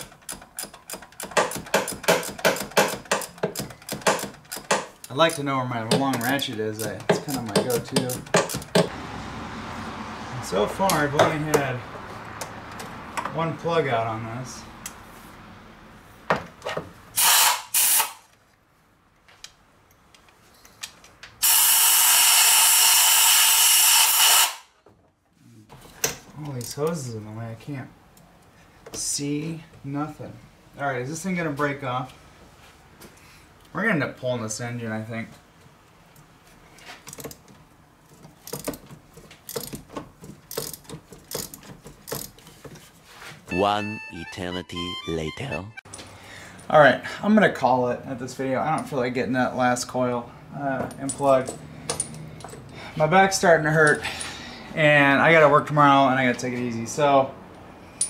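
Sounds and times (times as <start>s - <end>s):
hand ratchet clicking: 0.0s - 8.9s, 38.2s - 38.8s, 39.4s - 42.5s.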